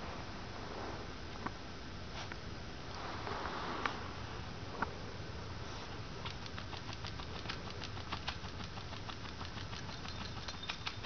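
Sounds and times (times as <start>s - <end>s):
low steady hum: 0.0s - 11.0s
puppy scratching on carpet: 5.7s - 11.0s.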